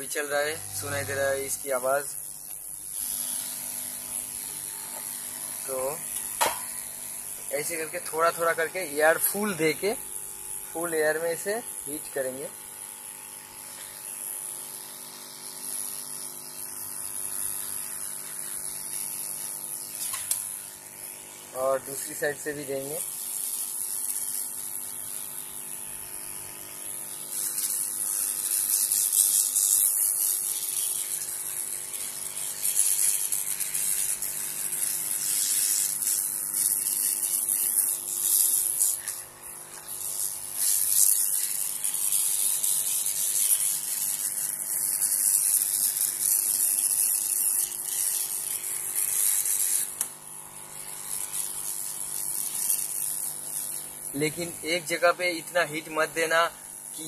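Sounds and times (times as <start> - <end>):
hot-air blower hissing: 0.0 - 12.4.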